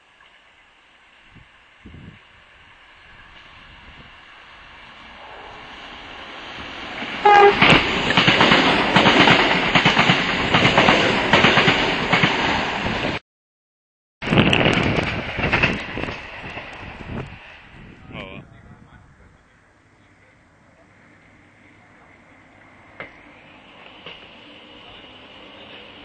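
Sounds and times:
electric train passing: 0.0 - 13.2, 14.2 - 26.0
train horn blast: 7.2 - 7.8.

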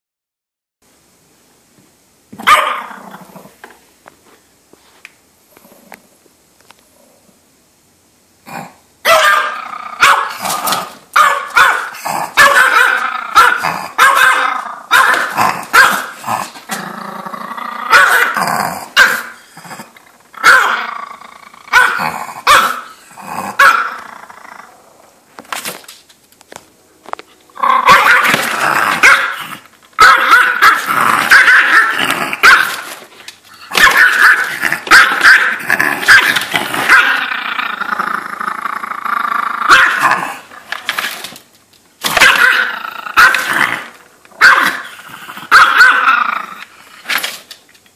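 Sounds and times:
small dog growling and barking: 2.4 - 3.6, 8.4 - 25.2, 27.6 - 41.3, 42.0 - 47.4.

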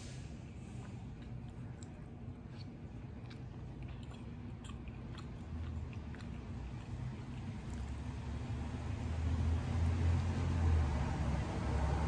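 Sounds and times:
person chewing food: 0.5 - 8.9
wet mouth clicks: 0.8 - 8.0.

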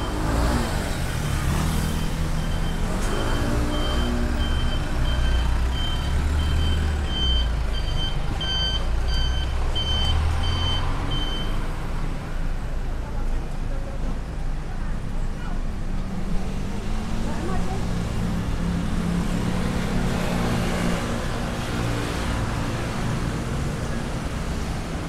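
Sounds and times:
reversing alarm beeping: 1.8 - 11.6.

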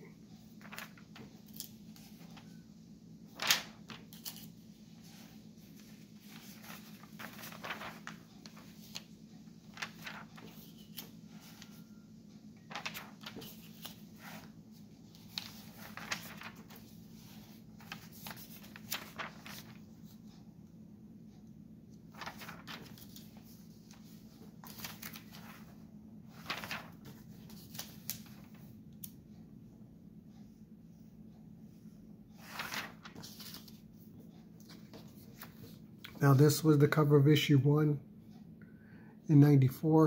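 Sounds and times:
low steady hum: 0.0 - 40.0
magazine pages turning: 0.5 - 2.6, 3.3 - 12.0, 12.6 - 20.2, 22.1 - 29.2, 32.4 - 33.8.

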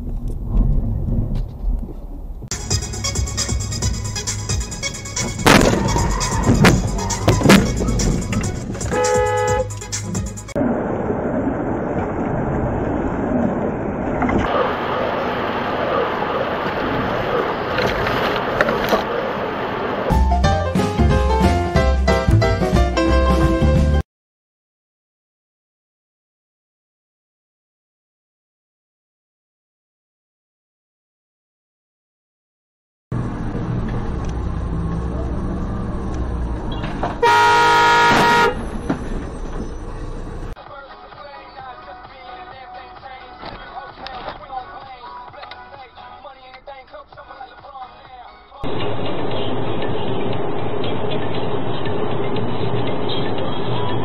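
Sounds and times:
engine and road rumble: 0.0 - 24.0, 33.1 - 54.0
vehicle horn blast: 8.9 - 9.8, 37.2 - 38.7
road and tyre noise in rain: 10.5 - 20.2, 33.2 - 40.6, 48.6 - 54.0.

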